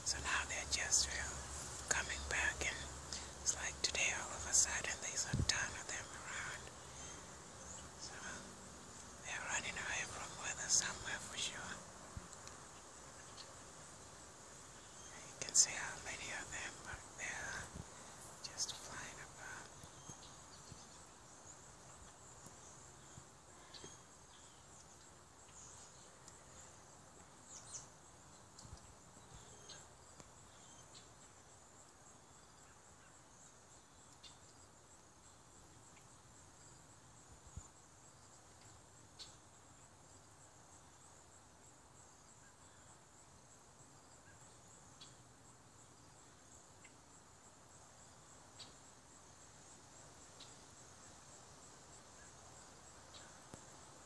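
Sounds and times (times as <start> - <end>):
insects trilling: 0.0 - 54.0
bird chirps: 18.5 - 26.2.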